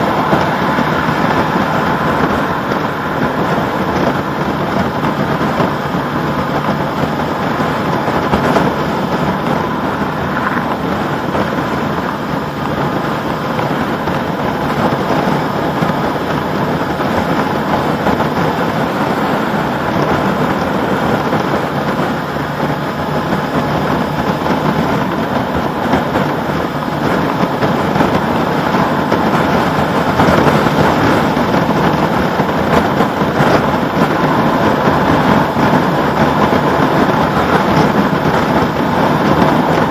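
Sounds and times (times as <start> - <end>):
motorcycle engine running: 0.0 - 39.9
tyre noise on road: 0.0 - 39.9
wind rush over microphone: 0.0 - 39.9.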